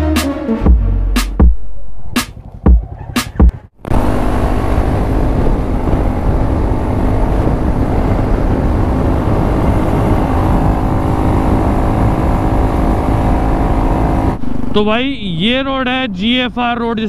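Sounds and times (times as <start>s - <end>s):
motorcycle engine running: 2.2s - 16.0s
dense rush of noise: 3.8s - 17.0s.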